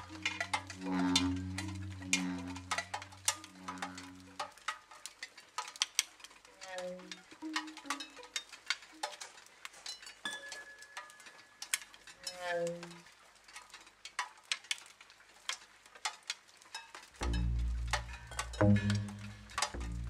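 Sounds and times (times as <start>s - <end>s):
loud low drone: 0.0s - 4.2s, 17.2s - 20.0s
tone sliding downward: 0.0s - 4.4s, 17.2s - 20.0s
crackling clicks and ticks: 0.0s - 20.0s.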